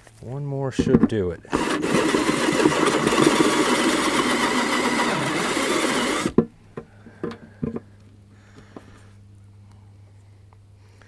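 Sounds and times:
cordless drill drilling plastic: 1.5 - 6.4.

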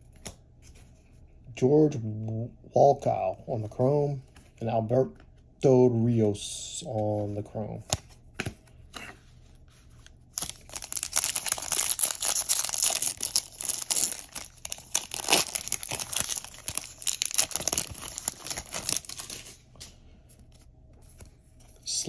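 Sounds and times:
foil wrapper tearing and crinkling: 10.3 - 19.6.

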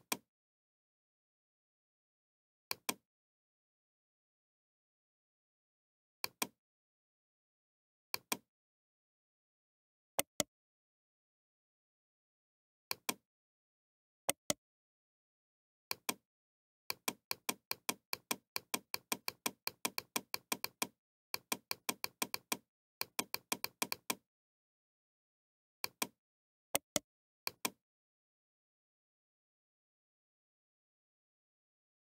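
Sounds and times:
computer mouse clicks: 16.9 - 24.2.

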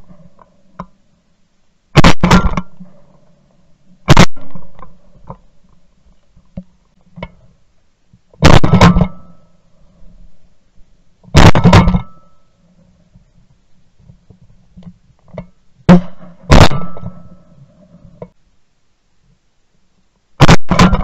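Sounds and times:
shotgun shots: 2.0 - 2.8, 4.1 - 4.8, 8.4 - 9.4, 11.3 - 12.2, 15.9 - 17.4, 20.4 - 21.0.

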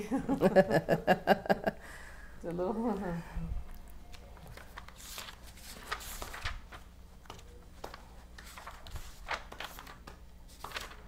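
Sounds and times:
faint low hum: 0.0 - 11.0
book pages turning: 4.1 - 11.0.

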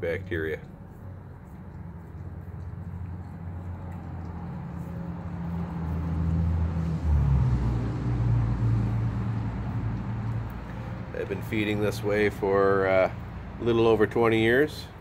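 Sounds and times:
vehicle engine humming: 0.0 - 15.0
dog chewing bone: 0.6 - 6.8.

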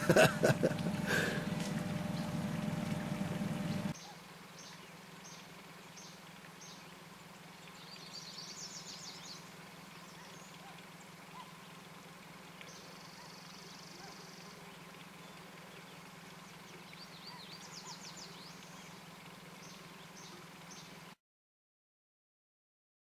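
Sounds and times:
steady low hum: 0.0 - 4.0
small birds chirping: 0.8 - 21.0.

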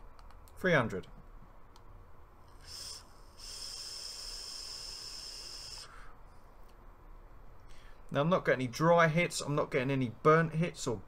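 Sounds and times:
air hissing through vape: 2.5 - 6.1.

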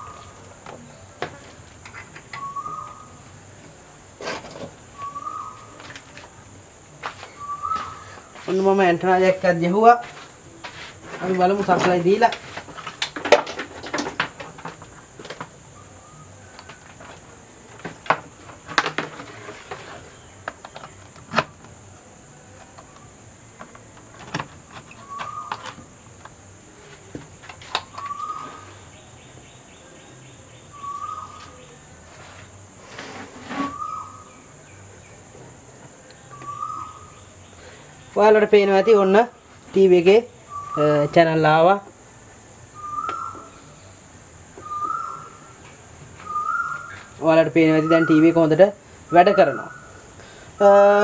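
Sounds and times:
bird call: 1.9 - 3.2, 5.0 - 6.1, 7.2 - 8.5, 24.9 - 25.9, 27.7 - 31.8, 33.4 - 34.7, 36.2 - 37.8, 40.4 - 41.2, 42.7 - 44.0, 44.6 - 48.4, 49.1 - 51.0.

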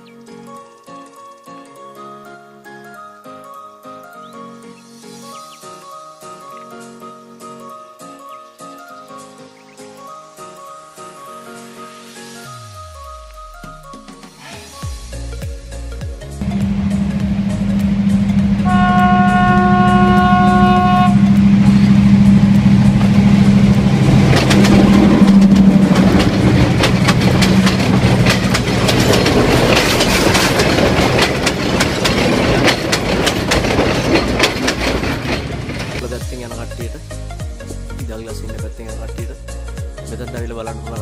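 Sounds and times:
train engine drone: 15.1 - 36.2
train horn blast: 16.5 - 27.0
wheels clattering over rail joints: 16.5 - 36.1.

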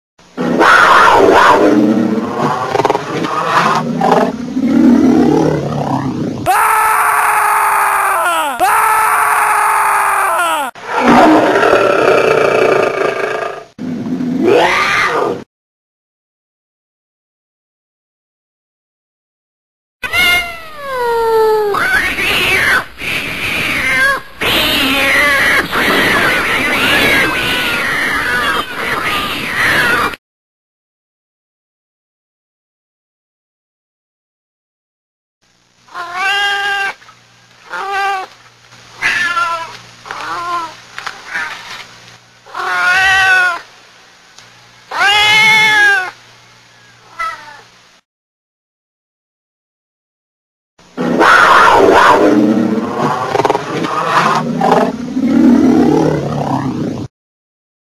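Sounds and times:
kitten meowing: 20.0 - 21.7
cat yowling: 20.0 - 22.9, 35.9 - 37.0, 37.7 - 38.3, 39.0 - 41.6, 42.5 - 43.6, 44.9 - 46.2, 47.1 - 47.6, 51.2 - 52.3.

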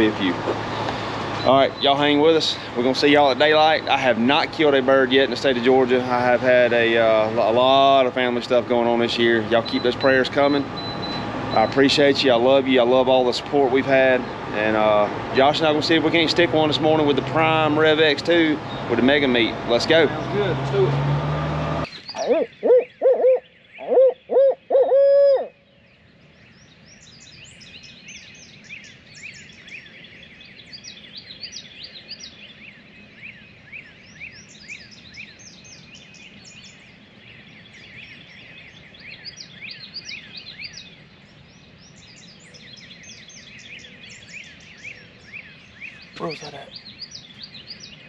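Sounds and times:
songbirds chirping and trilling: 0.0 - 48.0
owl hooting: 21.9 - 25.6.

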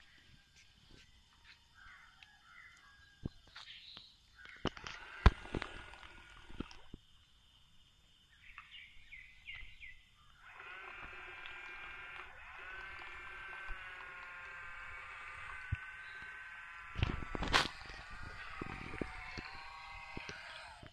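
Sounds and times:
electric motor whine: 4.7 - 6.9, 10.4 - 20.9.

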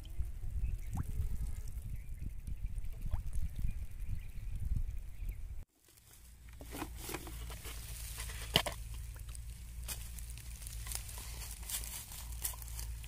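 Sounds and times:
rustling on dry straw: 5.7 - 13.0.

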